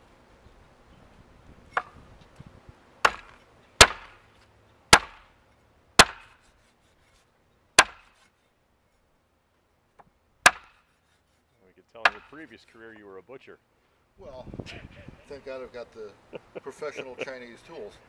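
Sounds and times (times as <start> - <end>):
machete chopping onto wood: 3.0 - 4.2, 4.9 - 5.4, 6.0 - 6.5, 7.8 - 8.3, 10.4 - 10.9, 12.0 - 12.5.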